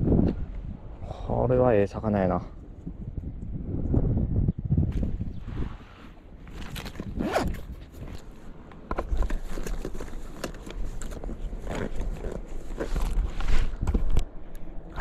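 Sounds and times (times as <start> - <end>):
clothing and hands rustling: 5.7 - 14.2.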